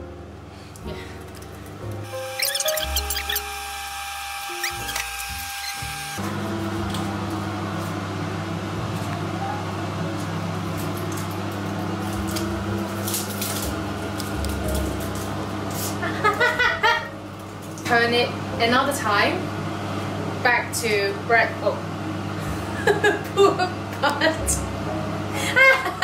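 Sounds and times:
kitchen fan humming: 0.0 - 26.0
aluminium foil crinkling: 10.7 - 16.0
background music: 24.2 - 26.0.

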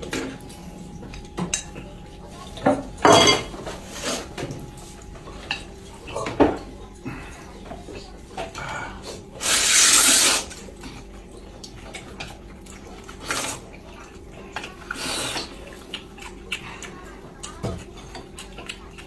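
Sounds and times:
man slurping noodles: 9.4 - 10.5.

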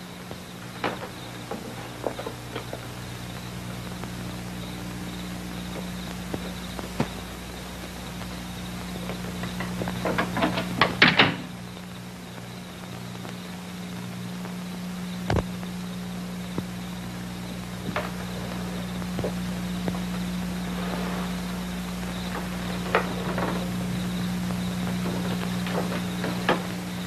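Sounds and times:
steady low hum: 0.0 - 27.0
clicks and knocks: 0.6 - 2.9, 9.3 - 11.6, 24.9 - 26.8.

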